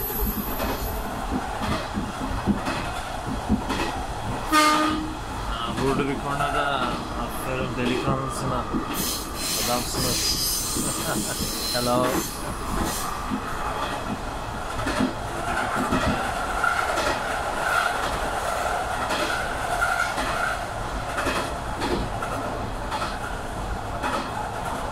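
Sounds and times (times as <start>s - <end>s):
high squeal of train wheels: 0.0s - 1.2s, 8.9s - 13.2s
rail clicks: 0.0s - 24.9s
railcar running along track: 0.0s - 24.9s.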